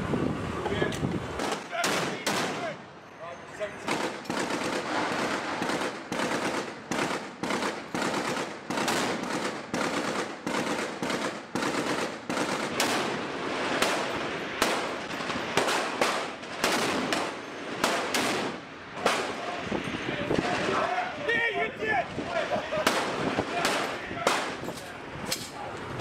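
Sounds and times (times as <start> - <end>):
rushing background noise: 0.0 - 26.0
rapid gunfire: 3.9 - 19.4.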